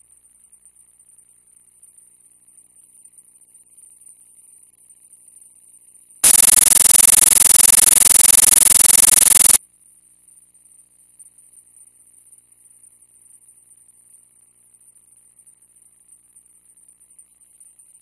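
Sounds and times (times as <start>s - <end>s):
harsh static burst: 6.2s - 9.6s.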